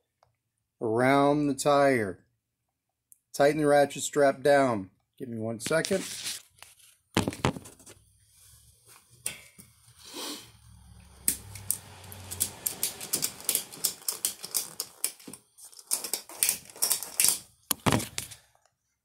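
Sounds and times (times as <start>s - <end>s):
ratchet strap clicking: 11.2s - 18.4s.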